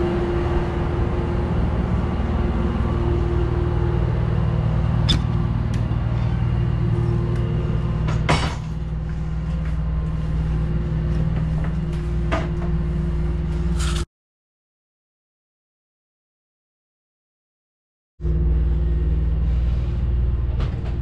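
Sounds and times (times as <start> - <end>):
boat engine humming: 0.0 - 13.8, 18.2 - 21.0.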